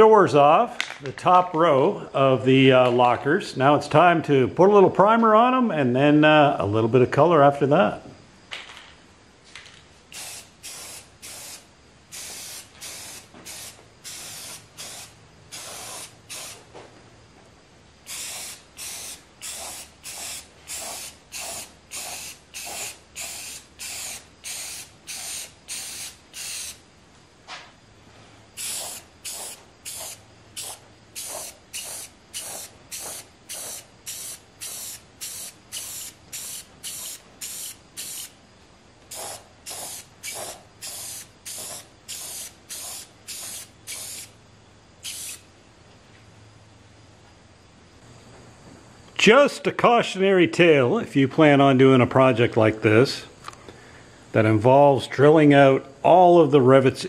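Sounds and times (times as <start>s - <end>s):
aerosol spray can bursts: 10.1s - 16.7s, 18.0s - 26.8s, 28.6s - 38.4s, 39.1s - 44.3s, 45.0s - 45.4s.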